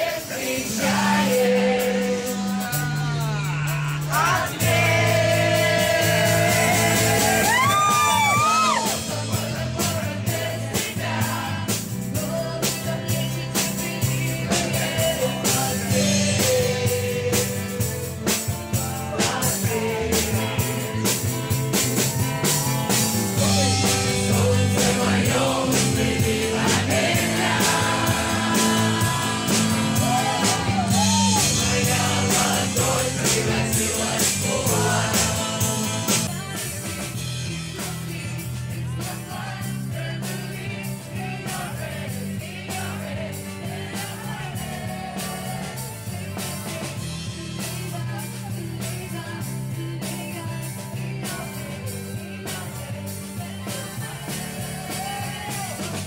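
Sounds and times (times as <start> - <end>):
band playing steady beat: 0.0 - 56.0
woman singing rock into microphone: 42.2 - 56.0.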